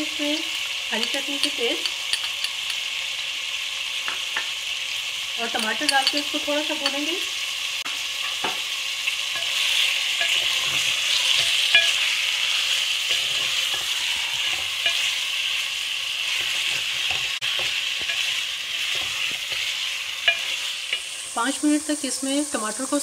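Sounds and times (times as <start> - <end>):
food sizzling in hot oil: 0.0 - 23.0
wooden spoon scraping pot: 9.4 - 15.6, 16.3 - 21.1.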